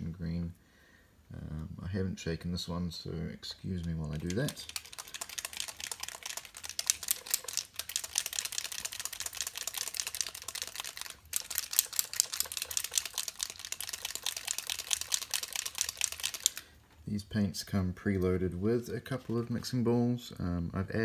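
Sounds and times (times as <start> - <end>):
paint bottle rattling when shaken: 3.7 - 16.7.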